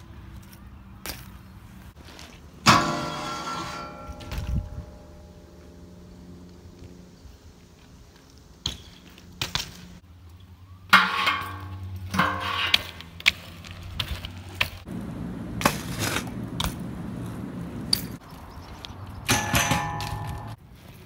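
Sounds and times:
bike tyres rolling on concrete: 0:00.0 - 0:21.0
bike landing clacks and knocks: 0:19.2 - 0:20.6.

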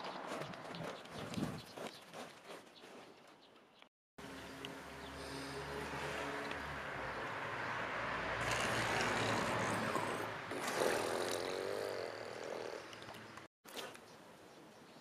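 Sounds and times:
vehicle passing: 0:04.2 - 0:13.4.

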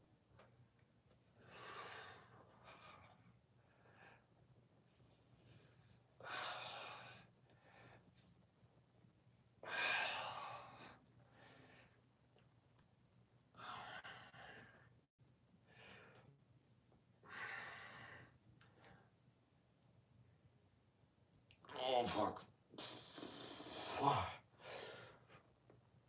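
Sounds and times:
person breathing hard: 0:01.4 - 0:04.3, 0:05.6 - 0:08.1, 0:13.6 - 0:15.0, 0:17.2 - 0:19.1, 0:22.8 - 0:25.5.

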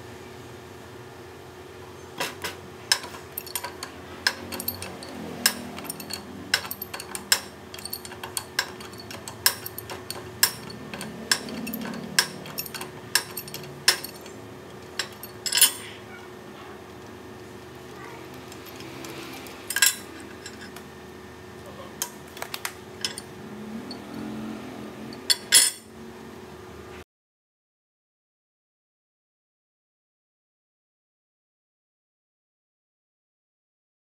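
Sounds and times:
pipe wrench clinking on steel fitting: 0:02.2 - 0:15.9, 0:18.4 - 0:20.8, 0:23.0 - 0:23.3, 0:25.1 - 0:25.8.

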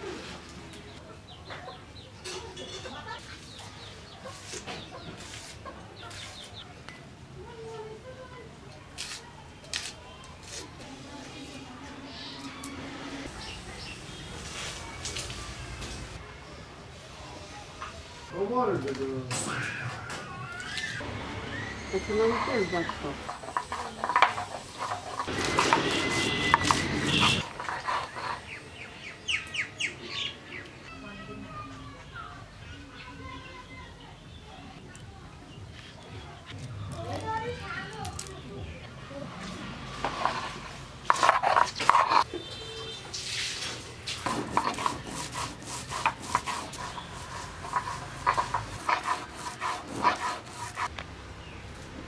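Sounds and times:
small birds chirping: 0:00.6 - 0:07.0, 0:12.1 - 0:15.8, 0:26.1 - 0:39.0
stone roller grinding wet paste: 0:21.9 - 0:28.6, 0:39.9 - 0:42.3, 0:44.0 - 0:51.0.

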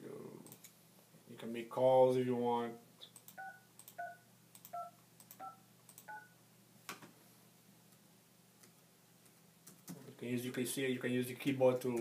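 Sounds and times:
phone keypad tones: 0:03.3 - 0:06.4.

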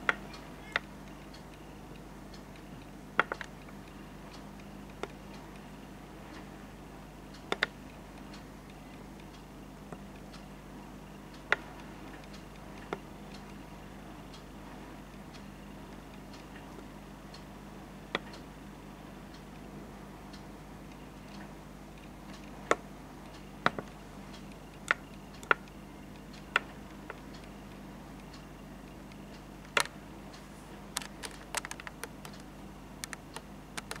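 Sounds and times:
faint steady hum: 0:00.0 - 0:34.0
sharp clicks and taps: 0:29.6 - 0:30.0, 0:30.9 - 0:34.0.

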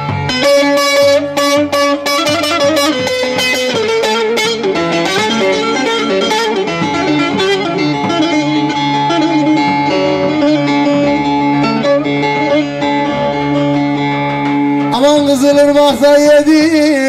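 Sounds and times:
plucked lute melody over drone: 0:00.0 - 0:17.0.

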